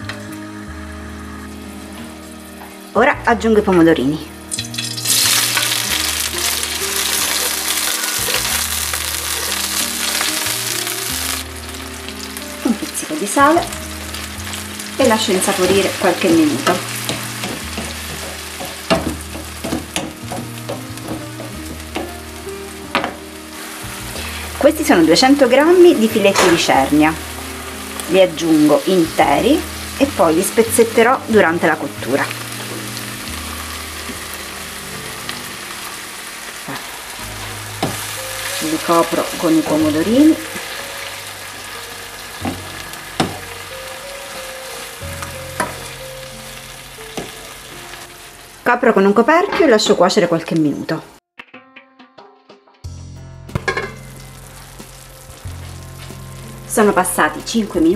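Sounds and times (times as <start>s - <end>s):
tomatoes sizzling in oil: 0.0s - 51.2s, 52.8s - 57.9s
wooden spoon knocking on pan: 15.6s - 22.3s, 22.9s - 23.3s, 37.8s - 38.1s, 42.4s - 43.5s.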